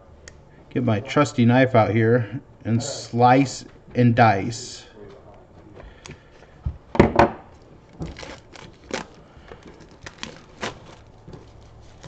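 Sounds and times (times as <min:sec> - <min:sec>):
knife slicing plastic wrap: 0:08.0 - 0:09.2, 0:09.8 - 0:12.0.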